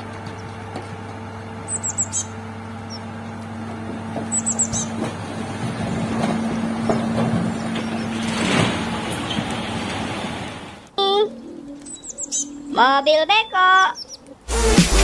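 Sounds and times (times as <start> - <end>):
diesel truck engine running: 0.0 - 10.9
birds chirping: 0.0 - 14.6.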